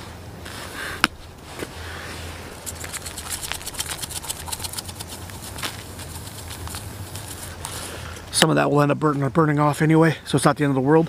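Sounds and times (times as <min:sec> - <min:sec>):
seasoning rattling from spice bottle: 0:02.6 - 0:07.6.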